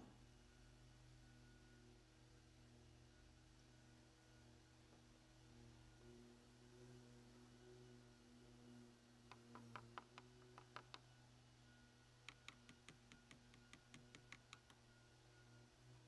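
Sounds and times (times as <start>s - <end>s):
screwdriver clicking on screw: 12.3s - 14.8s.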